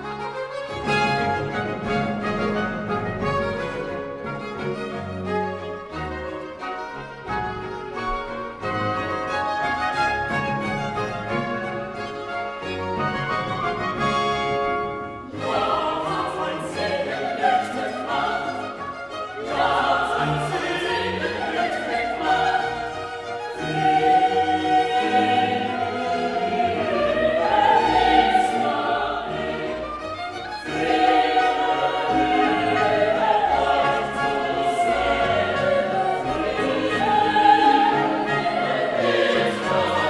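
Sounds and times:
orchestra playing: 0:00.0 - 0:40.0
choir singing: 0:14.7 - 0:40.0.

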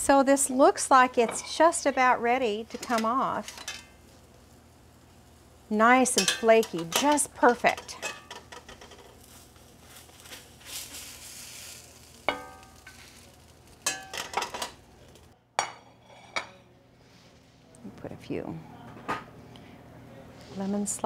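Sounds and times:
fish sizzling in a skillet: 0:00.6 - 0:15.2
metal spatula clinking on pan: 0:06.1 - 0:09.1, 0:12.3 - 0:13.0, 0:13.8 - 0:14.8.

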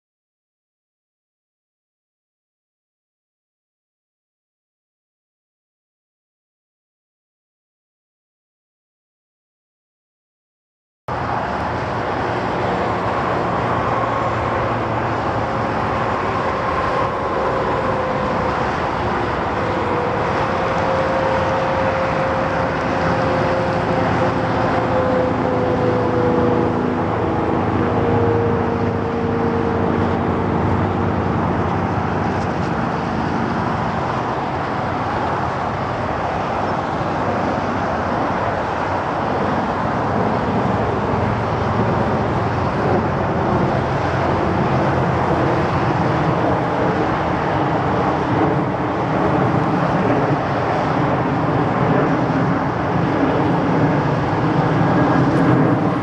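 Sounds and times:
highway traffic noise: 0:11.1 - 0:56.0
faint droning tones: 0:11.6 - 0:31.2.

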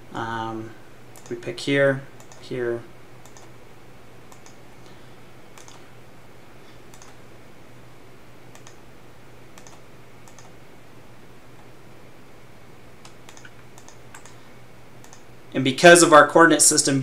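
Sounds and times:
steady low hum: 0:00.0 - 0:17.0
computer mouse clicking: 0:01.1 - 0:01.4, 0:02.2 - 0:02.5, 0:03.2 - 0:03.6, 0:04.3 - 0:04.6, 0:05.5 - 0:05.8, 0:06.9 - 0:07.2, 0:08.5 - 0:08.8, 0:09.5 - 0:10.6, 0:13.0 - 0:14.4, 0:15.0 - 0:15.3.

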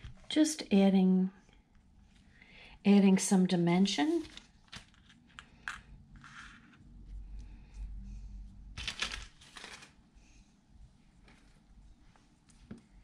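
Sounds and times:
paper and plastic rustling: 0:04.0 - 0:05.2, 0:08.8 - 0:10.0.

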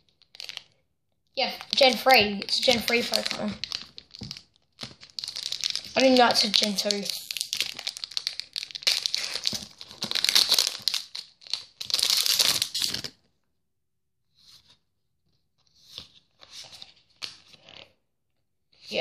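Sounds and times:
foil wrapper tearing and crinkling: 0:00.2 - 0:00.7, 0:01.6 - 0:13.1.

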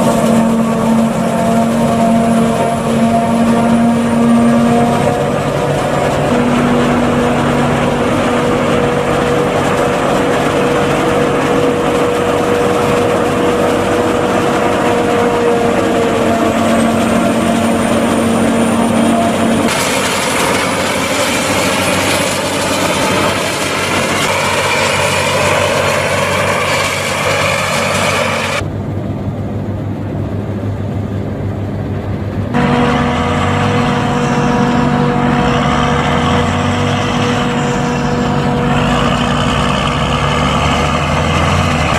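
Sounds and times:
forage harvester chopping corn: 0:00.0 - 0:28.6
tractor engines: 0:00.0 - 0:41.9.

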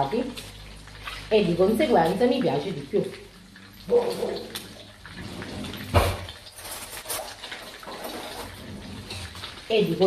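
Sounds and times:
meatballs sizzling in a frying pan: 0:00.0 - 0:05.2, 0:09.3 - 0:10.0
kitchen things knocking and clattering: 0:05.7 - 0:09.5.

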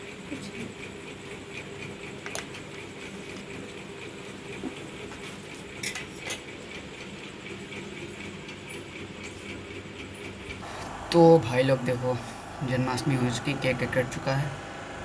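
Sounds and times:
background hum: 0:08.8 - 0:15.0.

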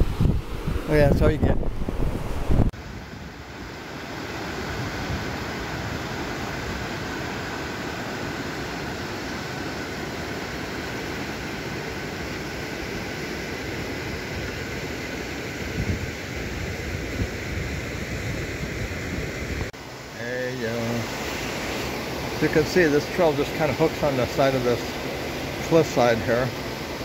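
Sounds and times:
river rushing over rocks: 0:19.8 - 0:27.0.

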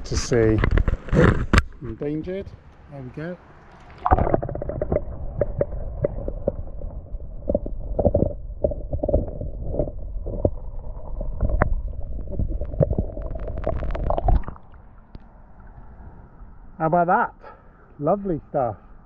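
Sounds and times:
faint steady hum: 0:03.6 - 0:19.0
underwater clicks and knocks: 0:03.8 - 0:15.3
muffled underwater river rumble: 0:04.0 - 0:16.8.

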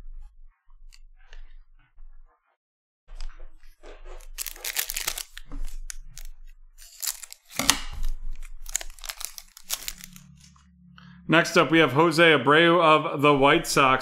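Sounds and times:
foil wrapper crinkling and tearing: 0:04.2 - 0:10.5.

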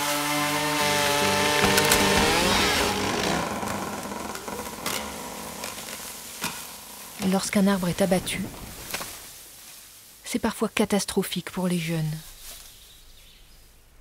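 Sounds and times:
chainsaw running under load: 0:00.0 - 0:07.7
wood cracking: 0:00.0 - 0:09.4
tree crashing through branches: 0:00.0 - 0:10.0.

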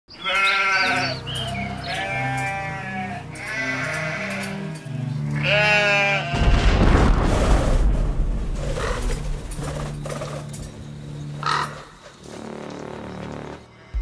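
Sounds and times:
sheep bleating: 0:00.2 - 0:06.4.

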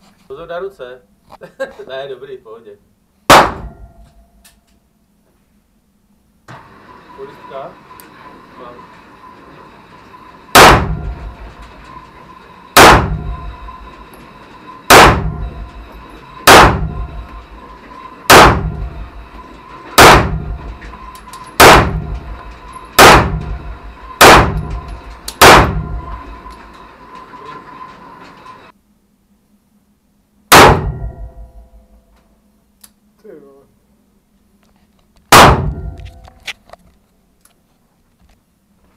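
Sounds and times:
pistol shots with short echo: 0:03.3 - 0:04.0, 0:10.5 - 0:11.5, 0:12.8 - 0:13.7, 0:14.9 - 0:15.7, 0:16.4 - 0:17.3, 0:18.3 - 0:19.1, 0:20.0 - 0:21.0, 0:21.6 - 0:26.4, 0:30.5 - 0:31.7, 0:35.3 - 0:36.0
revolver shot: 0:30.5 - 0:31.4.

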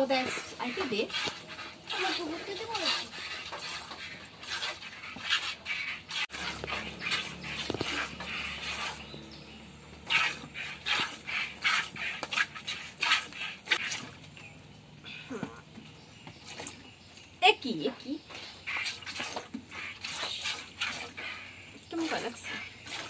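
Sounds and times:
milk squirting into plastic bucket: 0:00.3 - 0:09.2, 0:09.9 - 0:14.4, 0:18.3 - 0:23.0.

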